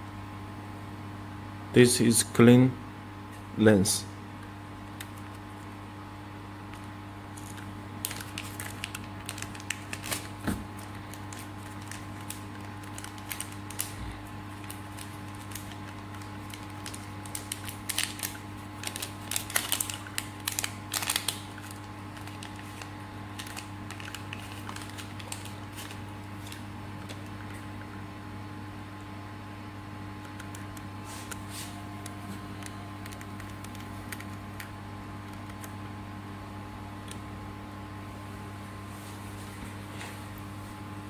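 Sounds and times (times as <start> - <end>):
steady machine hum: 0.0 - 41.0
plastic bag crinkling: 7.3 - 27.6.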